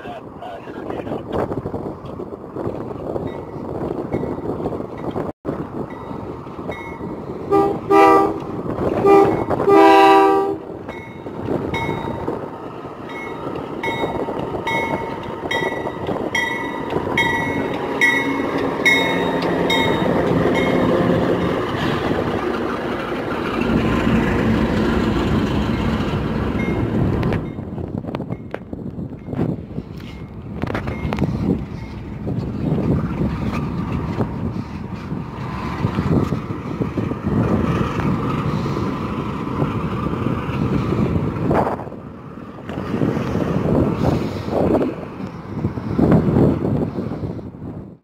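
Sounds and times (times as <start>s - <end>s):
diesel engine rumbling: 0.0s - 47.8s
train horn blasts: 7.5s - 10.7s
locomotive bell ringing: 10.9s - 12.3s, 13.0s - 21.6s, 26.5s - 27.7s.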